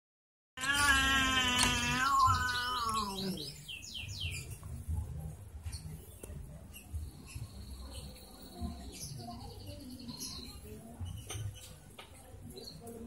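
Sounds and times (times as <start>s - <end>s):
cat yowling: 0.6s - 3.6s.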